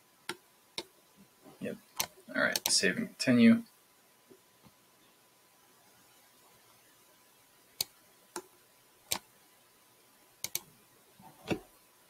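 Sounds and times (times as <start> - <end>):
computer mouse clicks: 2.0 - 2.8, 7.8 - 8.5, 9.1 - 9.3, 10.4 - 10.7.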